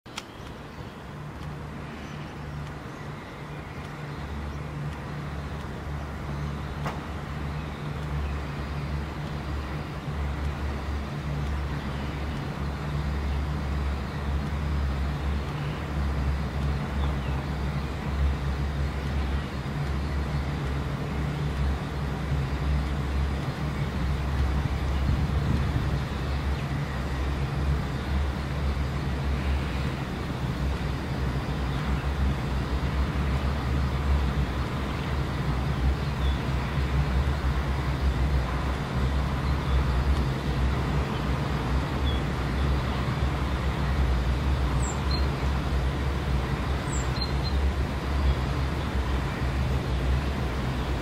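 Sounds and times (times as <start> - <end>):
low outdoor rumble: 0.1 - 51.0.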